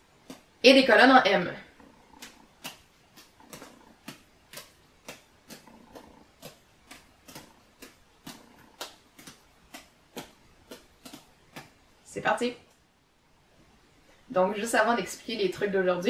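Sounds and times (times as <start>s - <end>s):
juggling balls slapping into hands: 2.2s - 5.7s, 6.3s - 12.0s.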